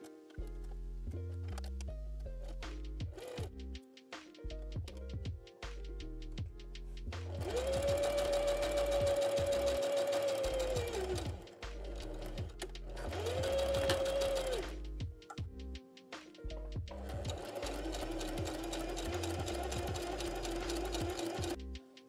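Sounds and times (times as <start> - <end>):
sewing machine motor whine: 7.4 - 11.4, 13.2 - 14.7, 17.3 - 21.6.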